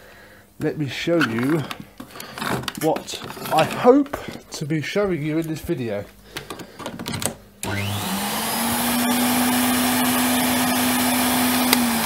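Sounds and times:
vacuum cleaner running: 7.6 - 12.0.

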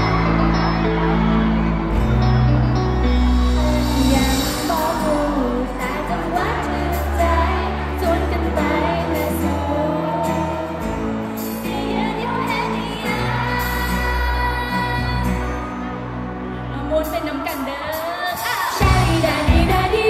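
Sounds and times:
pop song over sound system: 0.0 - 20.0
woman singing: 3.4 - 15.6, 16.7 - 20.0.

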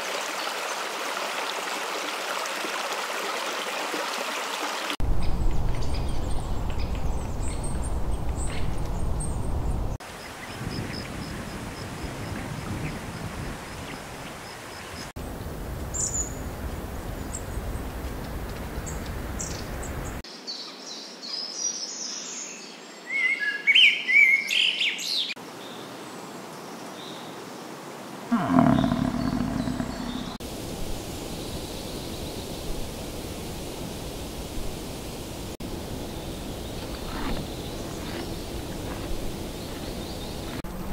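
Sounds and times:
outdoor background hiss: 3.8 - 40.9
birds chirping: 28.3 - 30.4
low falling bird call: 28.3 - 30.4.

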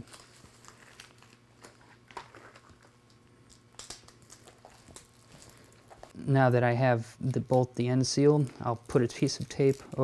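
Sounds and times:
duct tape crinkling: 0.0 - 6.2, 7.2 - 10.0
low steady hum: 0.0 - 10.0.

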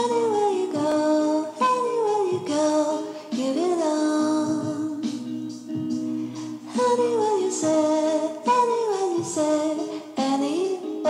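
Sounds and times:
background music: 0.0 - 11.0
person singing long notes: 0.0 - 11.0.

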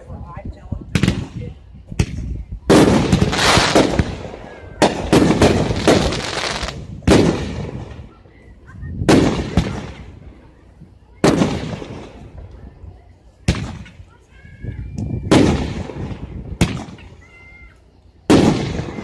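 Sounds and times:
fireworks bursting: 0.9 - 19.0
quick firework cracks: 2.0 - 7.9.

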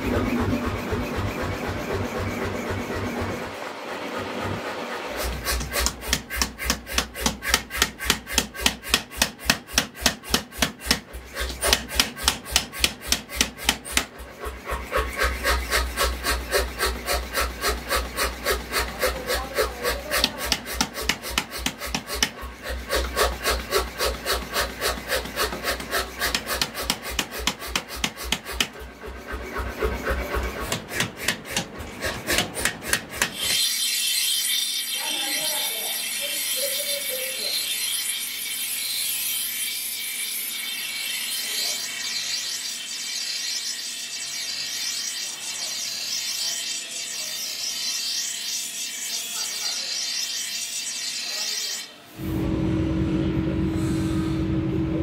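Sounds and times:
power hammer pounding steel: 0.0 - 33.7
low machine hum: 52.2 - 55.0.

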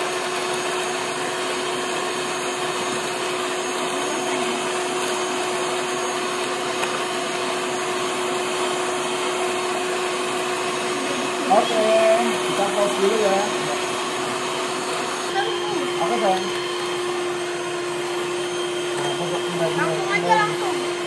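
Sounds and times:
beaters whipping eggs in bowl: 0.0 - 21.0
electric mixer whirring: 0.0 - 21.0.

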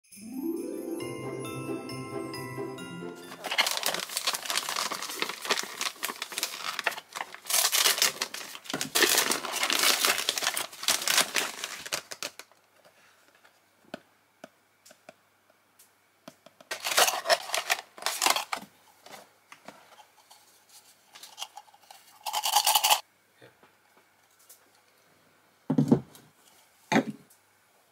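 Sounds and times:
wrapping paper tearing and crinkling: 3.4 - 12.6, 16.7 - 18.6.

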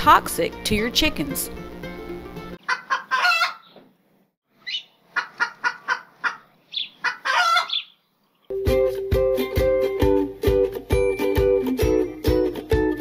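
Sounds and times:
chicken clucking: 2.6 - 3.9, 4.6 - 8.0
plucked ukulele music: 8.5 - 13.0.

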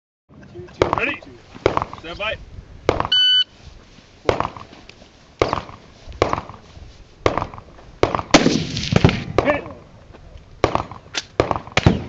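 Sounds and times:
gunshots: 7.2 - 9.7, 10.6 - 12.0.

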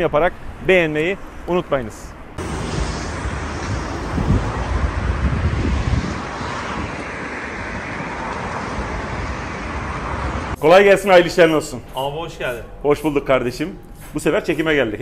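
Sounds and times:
road traffic rumble: 2.1 - 11.5
wind buffeting microphone: 2.4 - 10.6.

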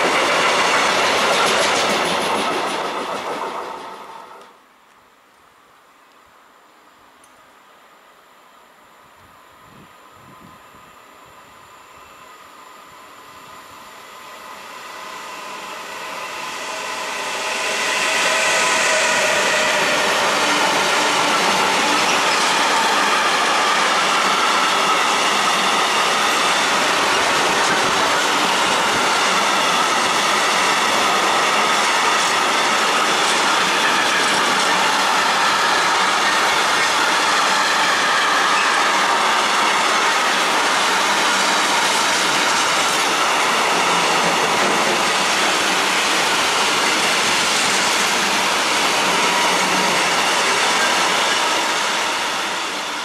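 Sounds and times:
high squealing wheels: 15.2 - 53.0.

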